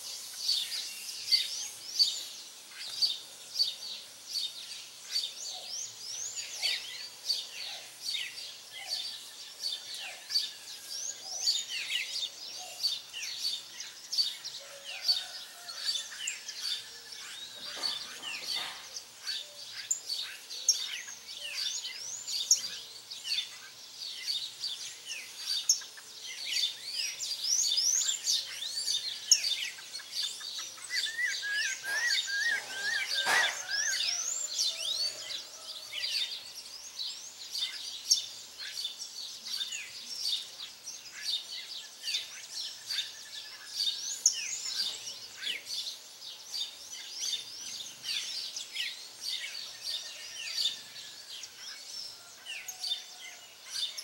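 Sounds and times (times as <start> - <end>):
birds chirping and whistling: 4.4 - 54.0
bird trill: 26.6 - 35.5.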